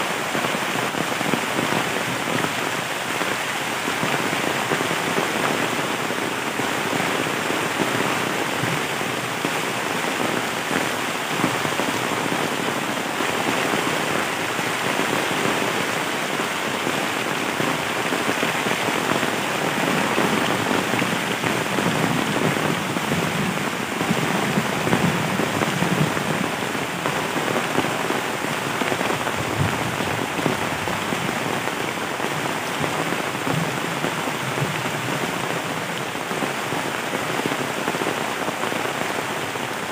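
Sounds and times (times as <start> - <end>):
heavy rain on leaves: 0.0 - 39.9.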